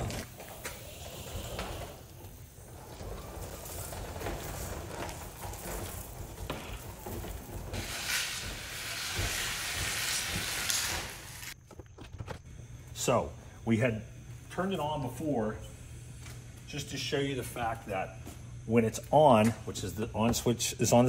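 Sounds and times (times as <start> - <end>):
hose hissing through hand: 0.0 - 11.6
hose reel rumbling: 0.0 - 13.2.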